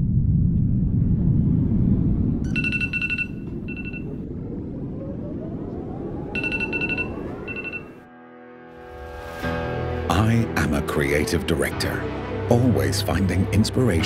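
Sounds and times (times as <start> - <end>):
low rumble: 0.0 - 8.2
rising tone sweep: 0.0 - 8.2
electronic phone ringtone: 2.5 - 4.2, 6.4 - 8.1.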